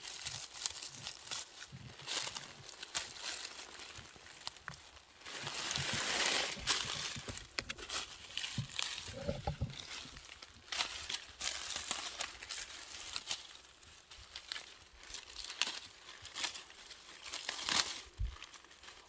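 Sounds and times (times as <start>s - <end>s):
leaves and stems rustling: 0.0s - 19.0s
swishing rush of plants: 5.4s - 6.9s
plant stems snapping: 14.3s - 18.5s.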